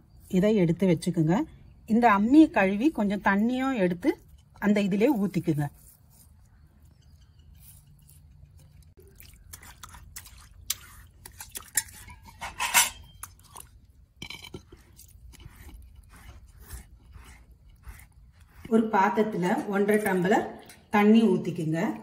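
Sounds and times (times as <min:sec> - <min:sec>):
fingers scraping grinding stone: 0:14.2 - 0:20.2.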